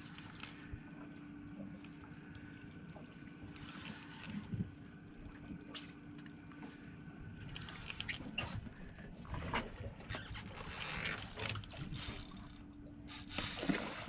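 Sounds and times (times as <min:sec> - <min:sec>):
water lapping against boat hull: 0:00.0 - 0:14.0
small splashes and knocks: 0:13.2 - 0:14.0.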